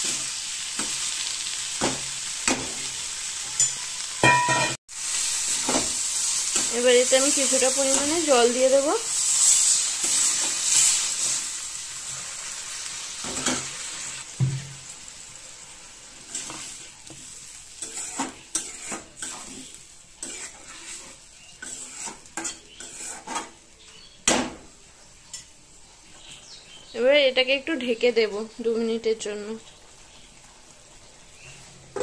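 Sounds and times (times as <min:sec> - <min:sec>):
metal spatula scraping a pan: 0:00.0 - 0:04.8, 0:05.5 - 0:13.9, 0:16.2 - 0:23.6
sizzling in a pan: 0:00.0 - 0:32.0.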